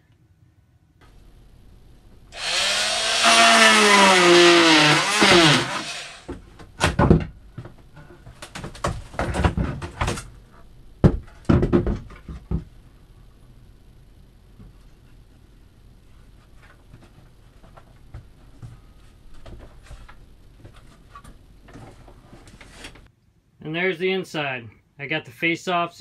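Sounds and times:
wooden frame screeching: 2.4 - 6.3
wooden panel knocking and clattering: 11.0 - 12.7.

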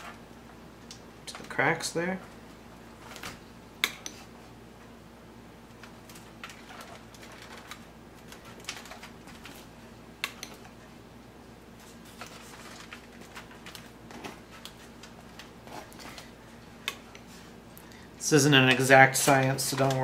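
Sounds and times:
foil crinkling: 6.1 - 9.7, 11.9 - 16.3.

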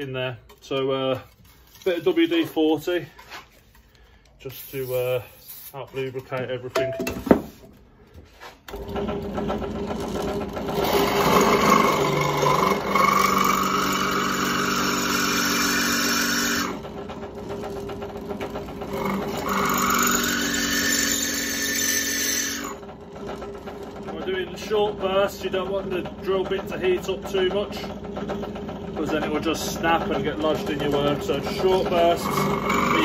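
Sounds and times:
drill bit whining through steel: 8.7 - 33.0
drill press motor humming: 8.7 - 33.0.

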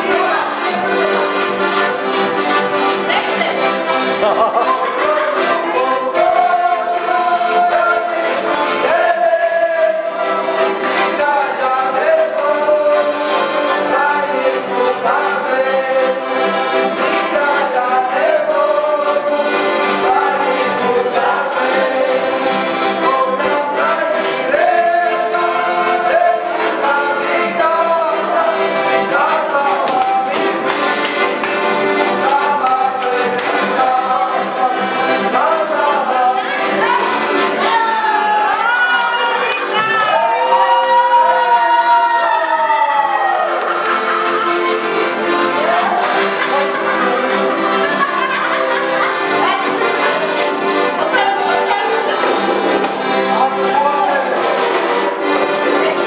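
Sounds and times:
accordion: 0.0 - 56.0
acoustic guitar: 0.0 - 56.0
two men singing: 4.2 - 30.9, 31.8 - 38.9, 41.0 - 50.4.

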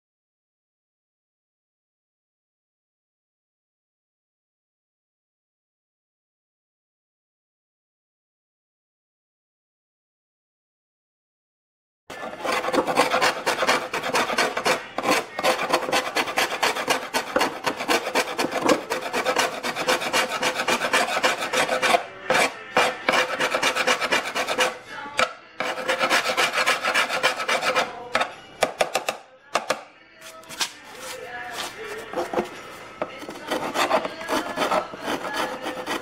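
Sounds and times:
hand scraper scraping fibreglass: 12.1 - 24.8, 25.6 - 29.1, 30.2 - 36.0.

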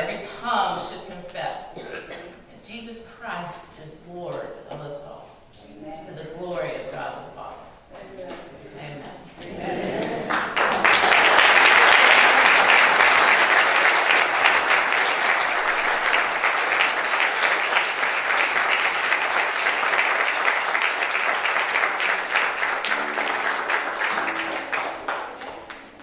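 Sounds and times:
congregation applauding: 9.6 - 26.0.

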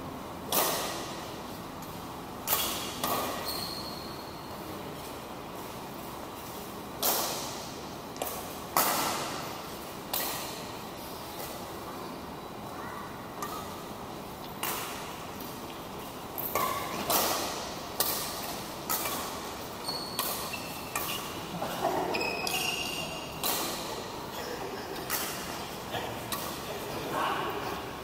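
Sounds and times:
rackets striking shuttlecock: 0.5 - 3.8, 6.4 - 11.6, 13.3 - 24.3, 24.9 - 26.9
high-pitched squeaks: 19.8 - 21.4, 22.0 - 23.4.

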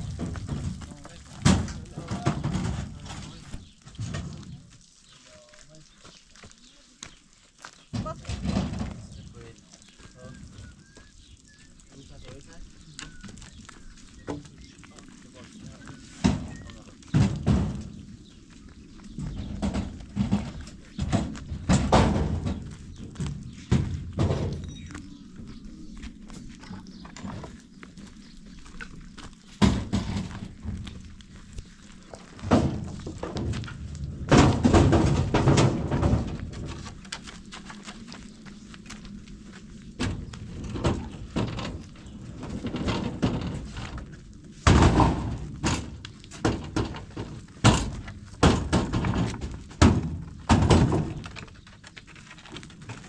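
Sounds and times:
heavy thuds and knocks: 0.0 - 4.6, 7.9 - 9.5, 16.2 - 18.2, 19.1 - 24.8, 29.6 - 31.0, 32.2 - 37.2, 40.0 - 51.5.

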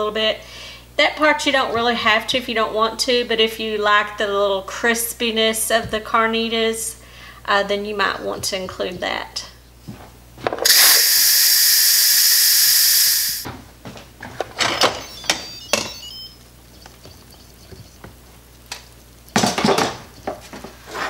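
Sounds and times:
pressure cooker steam hissing: 10.6 - 13.5.

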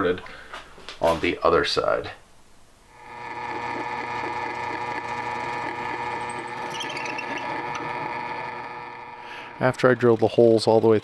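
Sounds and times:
drill press motor whine: 2.9 - 10.8.

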